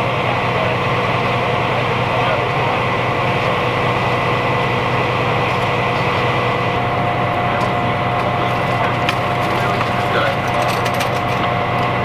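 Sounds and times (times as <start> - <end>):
heavy engine droning: 0.0 - 12.0
thin steady whine: 0.0 - 12.0.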